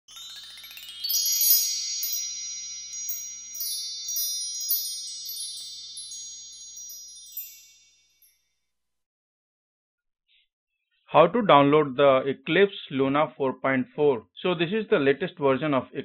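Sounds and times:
high ringing shimmering tones: 0.0s - 8.5s
struck chime notes tinkling: 0.0s - 8.5s.

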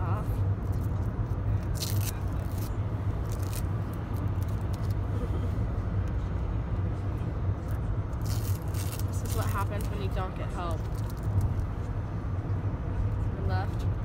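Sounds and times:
bus engine and road rumble: 0.0s - 14.0s
tape peeling crackles: 0.6s - 5.0s, 8.1s - 10.0s, 10.8s - 11.7s.

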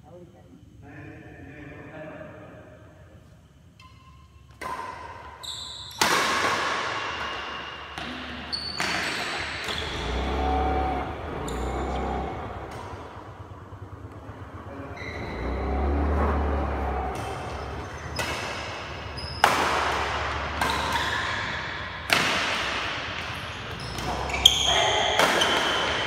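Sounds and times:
shoes squeaking on court: 3.8s - 6.2s, 7.9s - 13.2s, 16.7s - 26.0s
rackets hitting shuttlecock: 3.8s - 10.4s, 11.2s - 14.5s, 16.6s - 26.0s.

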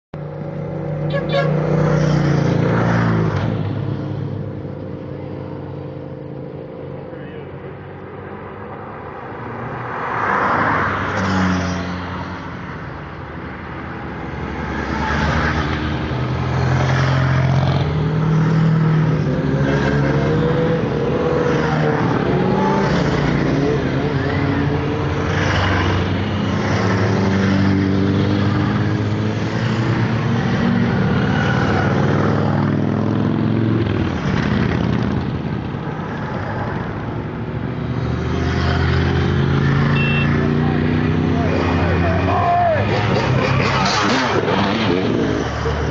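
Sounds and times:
motorcycles riding past: 37.7s - 45.9s.

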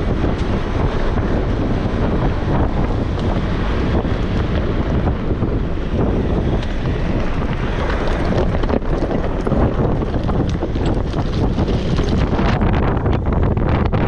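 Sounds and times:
vehicle rumble: 0.0s - 14.0s
wind buffeting microphone: 0.0s - 14.0s
tyres clicking on loose stones: 6.6s - 12.6s.

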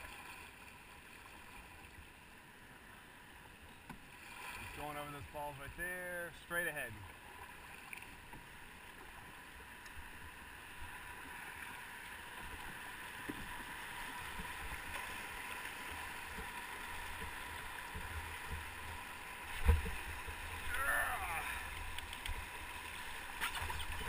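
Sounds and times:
whitewater rushing: 20.4s - 22.0s.

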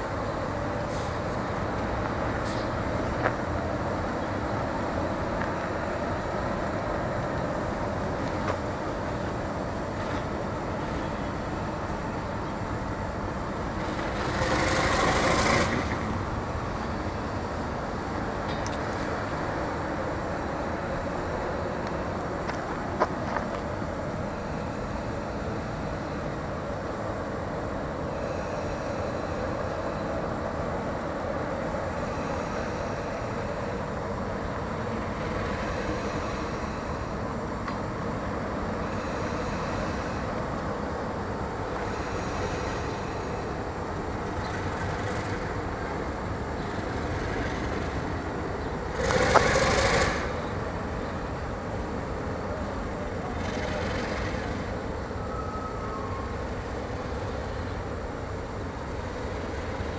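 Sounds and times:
diesel locomotive engine rumble: 0.0s - 59.9s.

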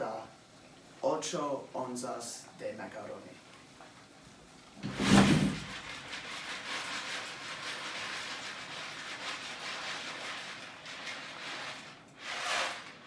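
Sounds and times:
dry pasta pouring into a pot: 5.7s - 13.0s.

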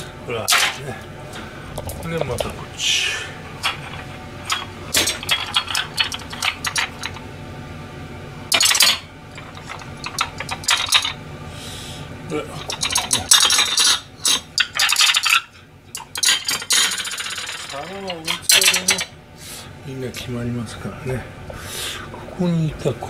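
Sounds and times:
ceramic plates clinking: 3.6s - 7.2s, 12.6s - 19.1s.

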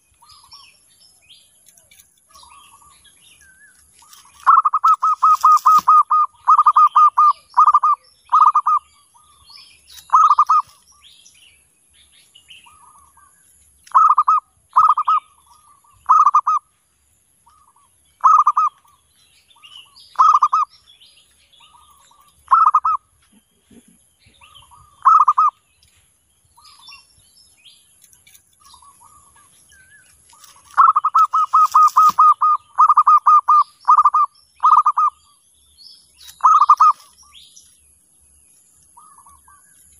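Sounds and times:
small birds chirping: 0.0s - 39.9s
doves cooing: 4.0s - 9.4s, 10.0s - 10.8s, 12.7s - 16.7s, 17.5s - 19.0s, 19.8s - 20.7s, 21.6s - 25.6s, 30.3s - 35.2s, 36.4s - 37.1s.

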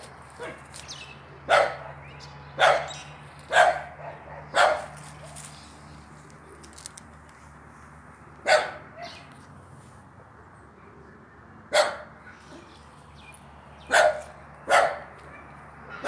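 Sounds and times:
dog barking: 0.4s - 0.6s, 1.5s - 2.0s, 2.6s - 5.0s, 8.4s - 9.2s, 11.7s - 12.7s, 13.9s - 16.0s.

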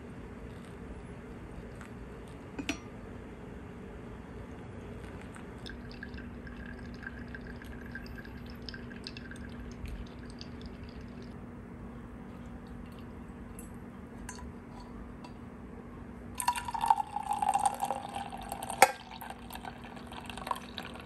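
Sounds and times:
faint drips: 4.5s - 11.4s
coffee pouring into a mug: 4.6s - 11.4s, 16.4s - 21.0s.

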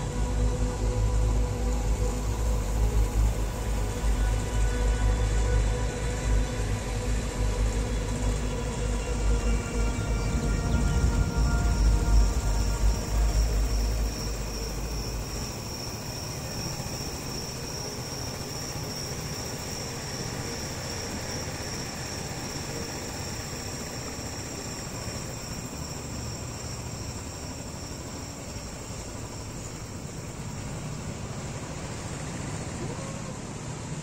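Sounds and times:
background music: 0.0s - 18.2s
motorcycle engine drone: 0.0s - 34.0s.

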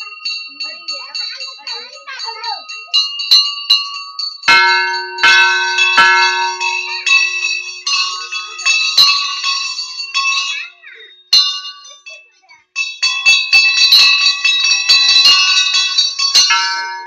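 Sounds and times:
brass bells clanging: 0.0s - 17.0s
deep bell ringing: 4.5s - 10.4s, 12.9s - 17.0s.

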